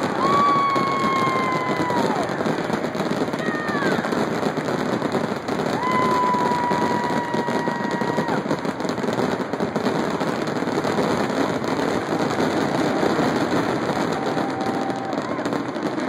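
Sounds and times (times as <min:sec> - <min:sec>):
fireworks bangs and crackles: 0:00.0 - 0:16.0.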